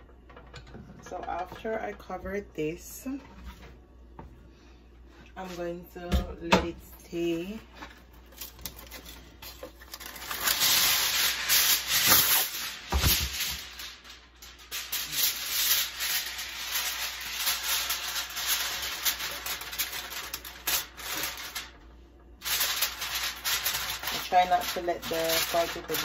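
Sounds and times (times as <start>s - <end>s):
aluminium foil crinkling: 7.1s - 26.0s.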